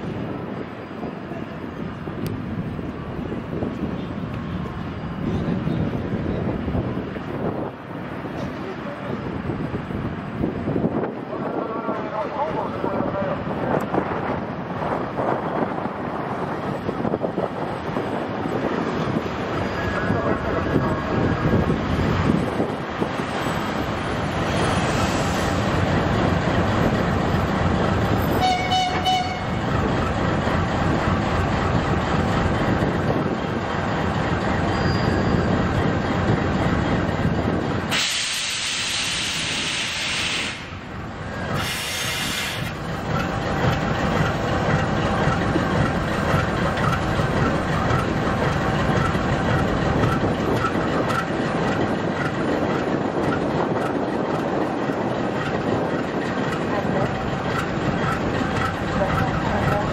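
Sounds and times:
diesel locomotive engine running: 0:00.0 - 0:59.9
high squeal: 0:34.6 - 0:35.6
air hissing: 0:37.9 - 0:40.8, 0:41.5 - 0:42.8.

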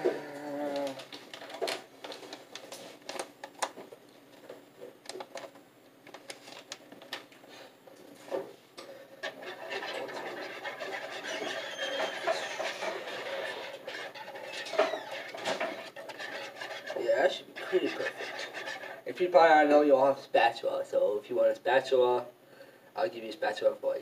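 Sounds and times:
utensils tapping against mixing bowl: 0:09.2 - 0:19.1
stirring batter in bowl: 0:09.2 - 0:19.7.

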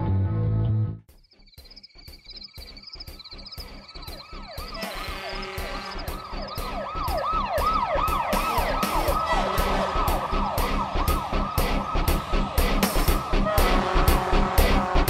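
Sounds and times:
music with steady beat: 0:01.1 - 0:15.0
emergency siren yelping: 0:03.1 - 0:15.0.

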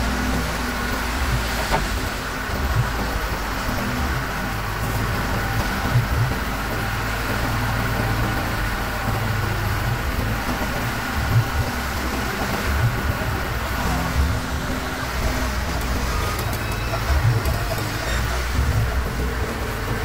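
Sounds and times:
diesel engines running: 0:00.0 - 0:20.0.

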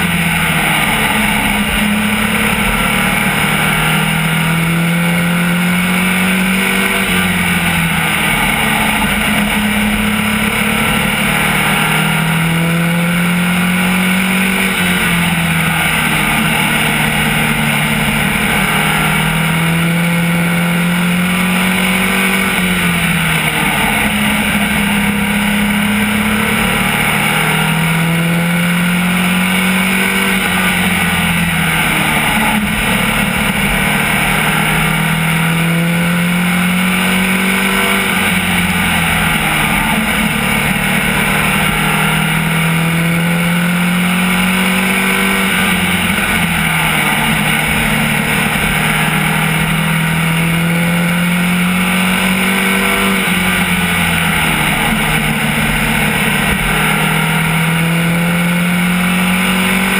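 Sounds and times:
race car engine revving: 0:00.0 - 0:59.9
wind and road noise: 0:00.0 - 0:59.9.

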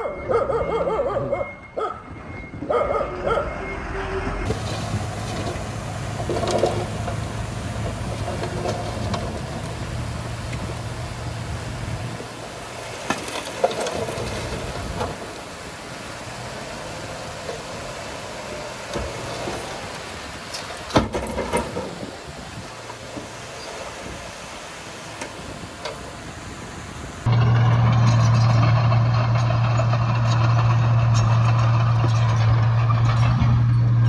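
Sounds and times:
heavy diesel engine running: 0:03.6 - 0:20.3, 0:27.2 - 0:34.0
rumbling background: 0:04.4 - 0:24.3.

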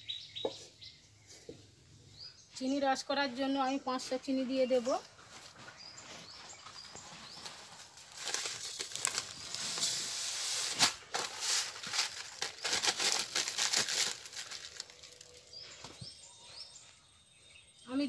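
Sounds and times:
plastic packet crinkling: 0:07.4 - 0:15.6.

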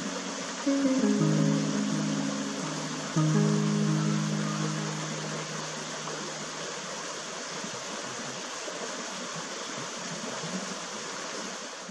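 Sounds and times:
background music low notes: 0:00.0 - 0:07.1
creek water over rocks: 0:00.0 - 0:11.9.

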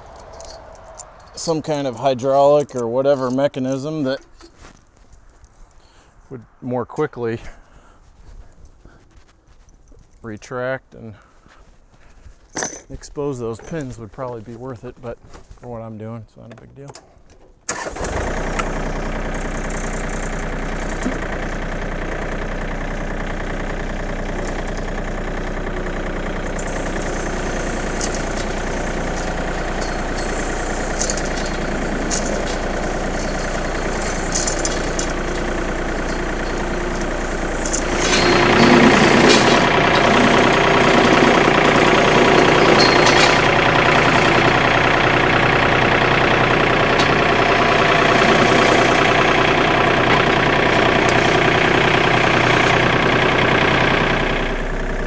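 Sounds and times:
light metallic clinks: 0:00.0 - 0:05.8, 0:27.9 - 0:39.6
tractor diesel engine running: 0:00.0 - 0:15.8, 0:16.5 - 0:55.0.

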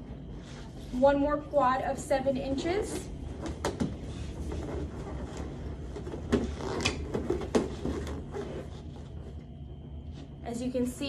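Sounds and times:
balloons rubbing and knocking: 0:03.3 - 0:09.4.

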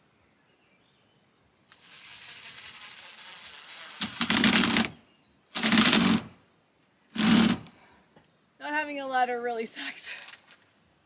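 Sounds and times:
impact driver motor whir: 0:01.7 - 0:05.0.

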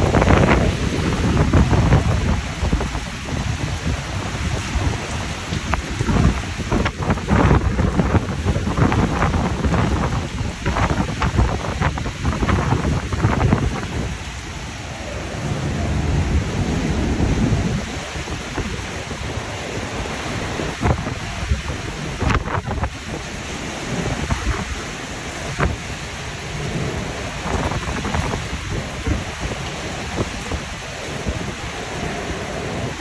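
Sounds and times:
driving rain: 0:00.0 - 0:33.0
strong wind buffeting microphone: 0:00.0 - 0:33.0.

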